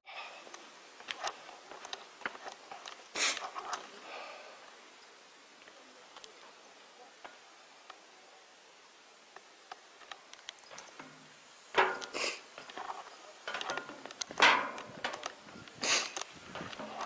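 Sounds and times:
footsteps on steel stairs: 10.8s - 15.5s, 16.5s - 17.0s.

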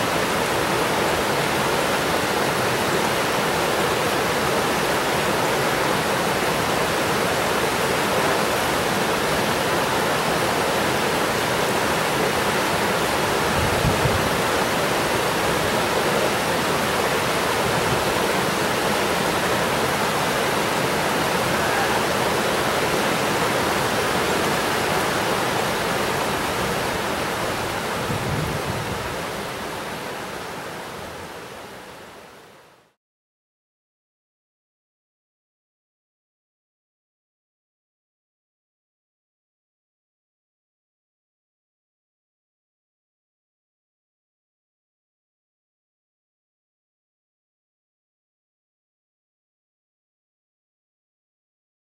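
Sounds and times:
river rapids rushing over boulders: 0.0s - 32.6s.

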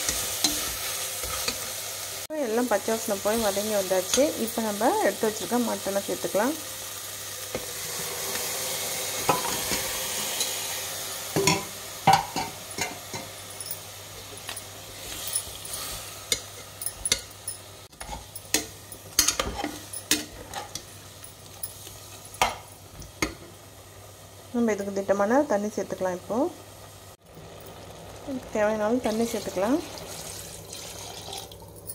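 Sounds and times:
meat sizzling in pot: 0.0s - 31.9s.

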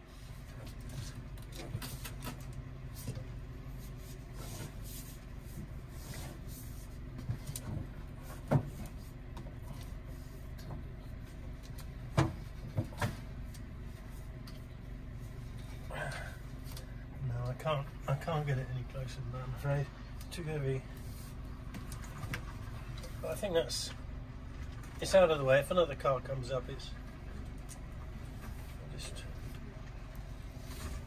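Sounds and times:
low machine hum: 0.0s - 31.0s
heavy cable knocks and clunks: 7.2s - 9.7s, 12.0s - 13.3s.

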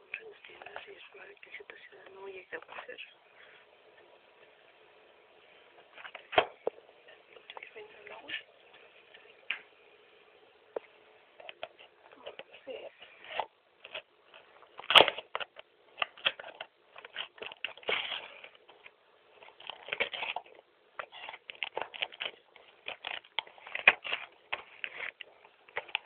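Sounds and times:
packaging crinkling and crackling: 11.4s - 26.0s.

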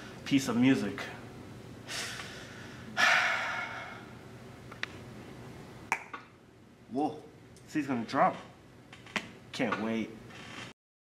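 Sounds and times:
person breathing in: 1.9s - 4.2s.

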